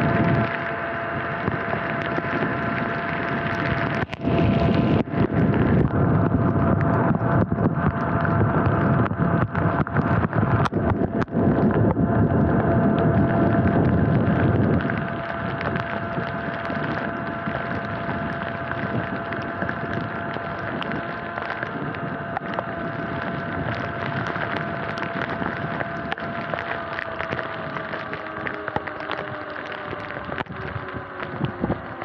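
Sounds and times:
wind buffeting microphone: 0.0 - 32.0
electric motor whine: 9.4 - 32.0.

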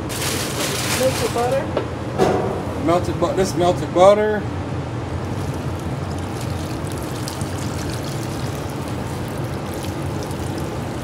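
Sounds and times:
melted butter pouring: 5.2 - 11.0.

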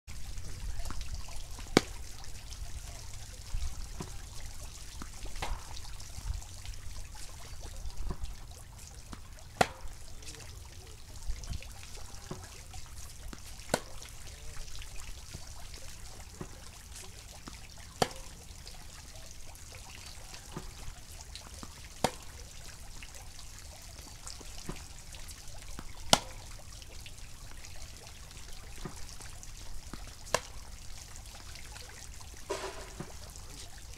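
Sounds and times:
low rumble and hiss: 0.1 - 33.9
tennis ball hit by racquet: 1.6 - 2.0, 4.0 - 4.2, 5.0 - 5.8, 9.1 - 9.9, 13.3 - 14.0, 17.4 - 18.4, 20.5 - 20.9, 21.6 - 22.4, 26.1 - 26.4, 29.9 - 30.6, 32.5 - 33.4.

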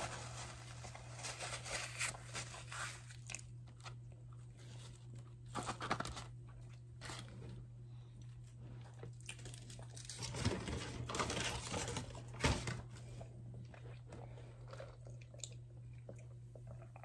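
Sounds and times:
steady low hum: 0.0 - 17.0
chewing and crunching food: 6.3 - 17.0.

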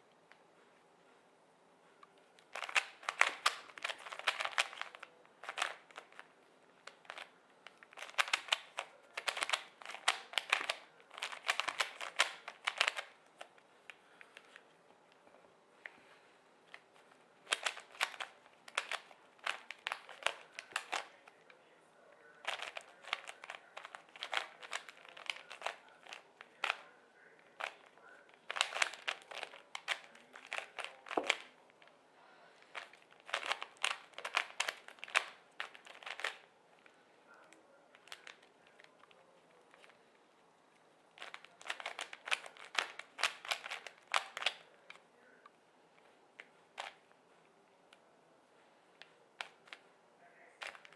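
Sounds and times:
puzzle cube layers clicking: 2.5 - 6.2, 6.9 - 13.2, 17.4 - 21.1, 22.4 - 26.8, 32.8 - 36.4, 41.2 - 44.6.

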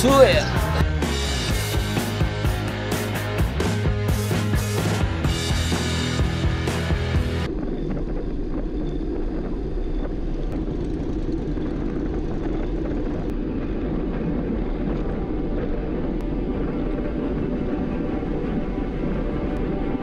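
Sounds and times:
wind rumbling over microphone: 7.4 - 20.0.

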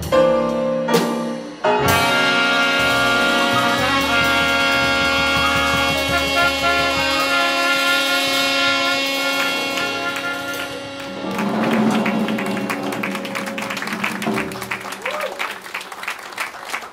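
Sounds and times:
double bass: 0.0 - 15.2
drum and cymbal flourish: 0.0 - 15.2
piano: 0.0 - 16.9
trumpet: 1.7 - 15.7
saxophone: 1.8 - 15.2
people clapping: 9.4 - 16.9.

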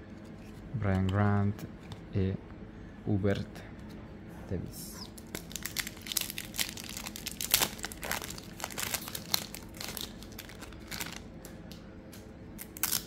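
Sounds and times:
trading cards crinkling and clicking: 5.0 - 13.0.

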